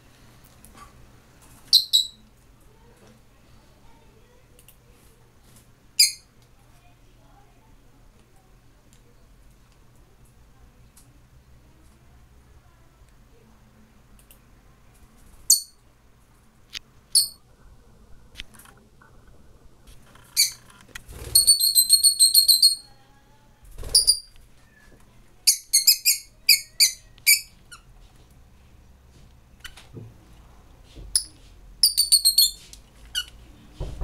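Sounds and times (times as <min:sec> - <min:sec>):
lovebirds chirping shrilly: 0:21.2 - 0:22.9.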